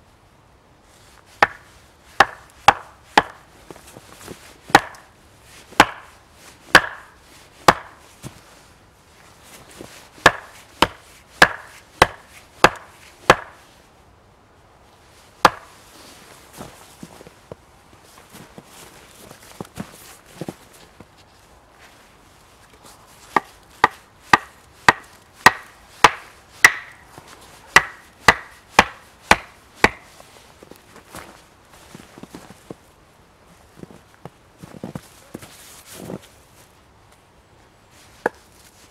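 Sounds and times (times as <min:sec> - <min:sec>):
hatchet striking wooden stake: 0:01.4 - 0:01.6, 0:02.2 - 0:03.4, 0:04.7 - 0:05.1, 0:05.8 - 0:06.1, 0:06.7 - 0:08.0, 0:10.2 - 0:13.6, 0:15.4 - 0:15.7, 0:23.4 - 0:27.0, 0:27.8 - 0:30.1.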